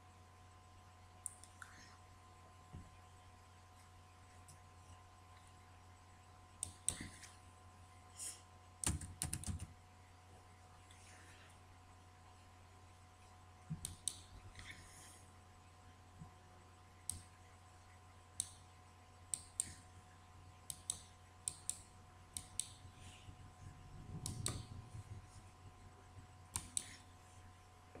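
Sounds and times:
computer mouse clicks: 0:06.6 - 0:07.3, 0:08.8 - 0:09.7, 0:13.8 - 0:14.3, 0:17.1 - 0:17.3, 0:18.4 - 0:18.6, 0:19.3 - 0:19.8, 0:20.7 - 0:22.8, 0:24.2 - 0:24.7, 0:26.5 - 0:27.0.

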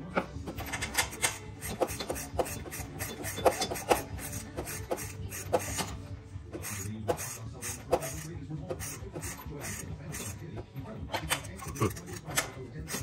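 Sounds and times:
hand tools clicking on metal: 0:00.5 - 0:05.9, 0:11.1 - 0:13.0.

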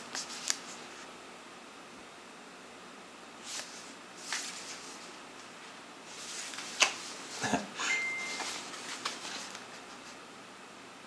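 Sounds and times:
cardboard and paper rustling: 0:03.5 - 0:05.1, 0:06.1 - 0:07.5, 0:08.3 - 0:10.2
thin high tone: 0:07.8 - 0:08.7.

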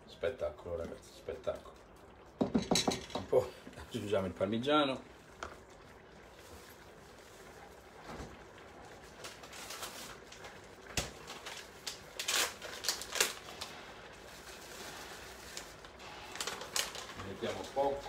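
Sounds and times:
plastic bag rustling: 0:06.2 - 0:18.0.

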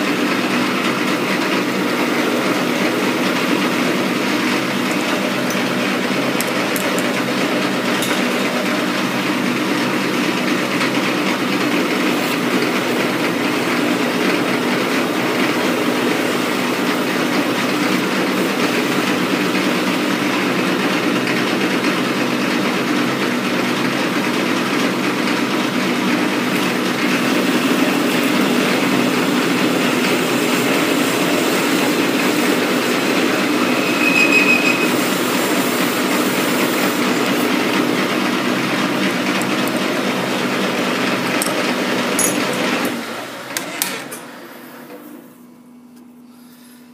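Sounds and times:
metal lathe cutting steel: 0:00.0 - 0:43.9.

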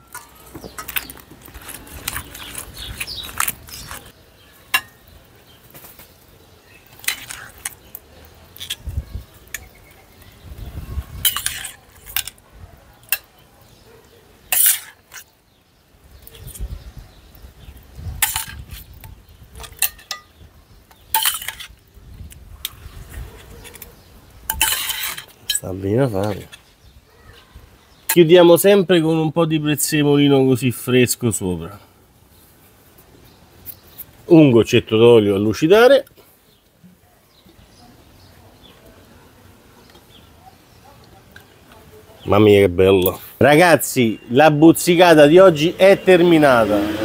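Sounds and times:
metal spoon clinking on plate: 0:19.6 - 0:20.4, 0:21.2 - 0:21.7, 0:24.5 - 0:25.6.

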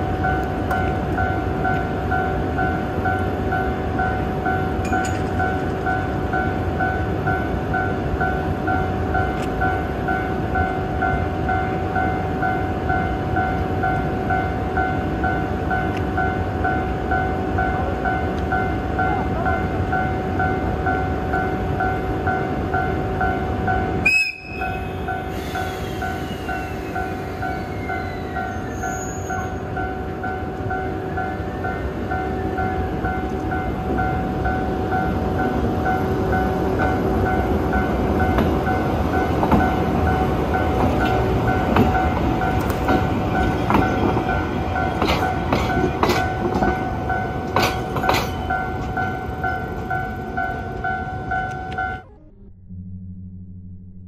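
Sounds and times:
level crossing warning bell: 0:00.0 - 0:52.3
wheels clacking over rail joints: 0:37.2 - 0:51.9.

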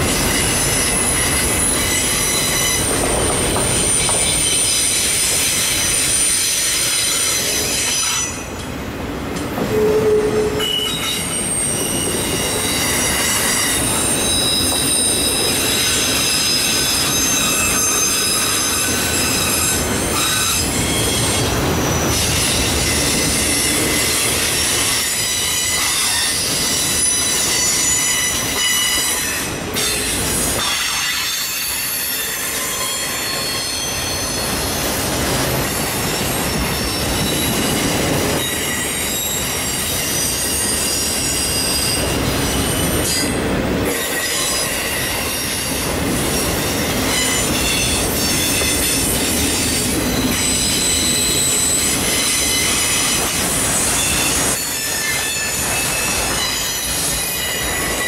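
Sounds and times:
high-pitched wheel squeal: 0:09.7 - 0:21.4, 0:46.7 - 0:58.0.

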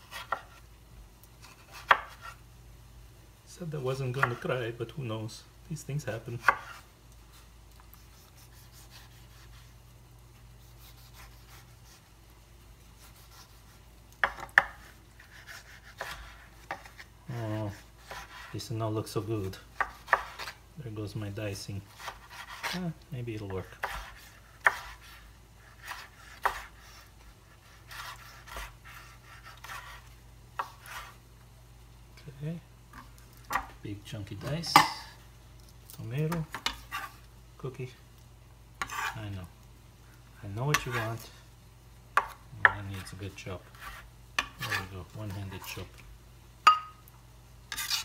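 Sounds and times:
knife slicing tomato: 0:00.0 - 0:00.6, 0:01.4 - 0:02.4, 0:04.1 - 0:04.6, 0:06.4 - 0:06.8, 0:07.8 - 0:09.7, 0:10.6 - 0:12.1, 0:13.0 - 0:18.6, 0:19.5 - 0:20.6, 0:21.8 - 0:31.2, 0:38.8 - 0:39.2, 0:40.7 - 0:41.2, 0:42.2 - 0:45.9, 0:47.7 - 0:48.0.

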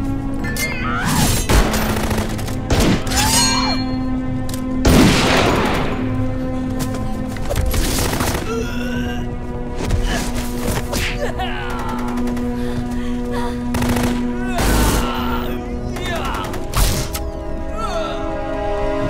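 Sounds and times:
dramatic film score: 0:00.0 - 0:19.0
gunfire: 0:01.4 - 0:03.1, 0:04.8 - 0:06.2, 0:13.7 - 0:15.0.

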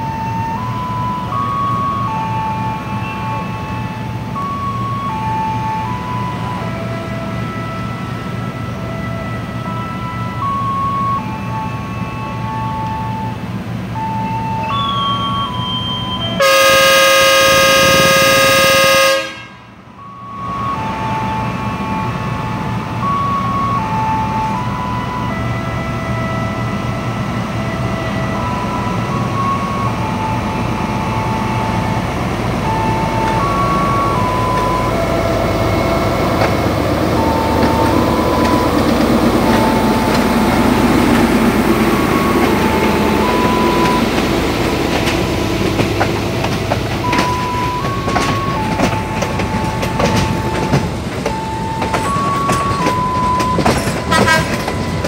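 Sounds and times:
train engine rumbling: 0:00.0 - 0:55.0
locomotive air horn blast: 0:16.4 - 0:19.8, 0:53.9 - 0:55.0.

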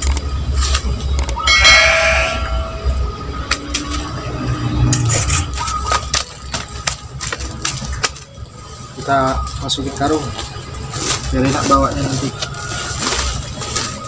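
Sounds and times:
plastic sack crackling and rustling: 0:05.3 - 0:14.0.

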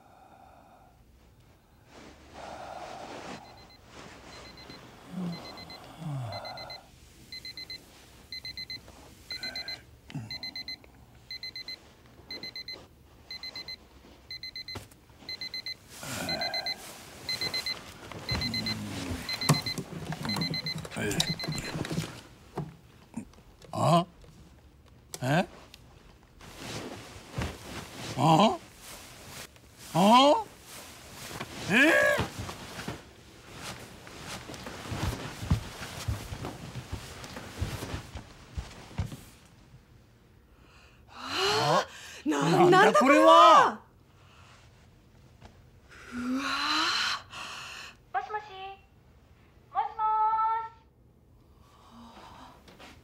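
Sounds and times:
alarm clock beeping: 0:04.4 - 0:22.0.

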